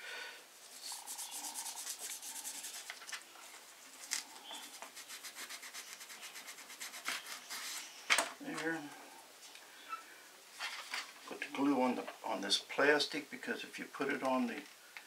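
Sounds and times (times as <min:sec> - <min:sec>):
sandpaper scraping plastic: 0:00.6 - 0:07.9.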